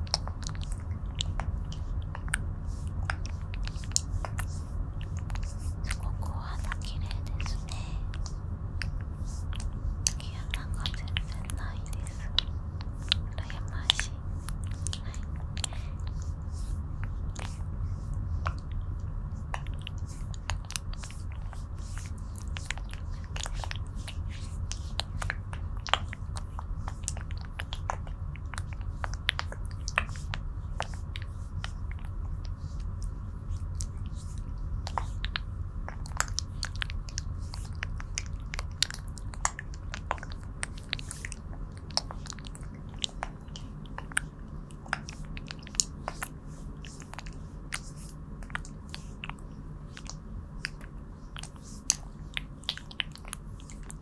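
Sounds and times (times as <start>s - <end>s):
wet sticky clicks and squelches: 33.5s - 54.0s.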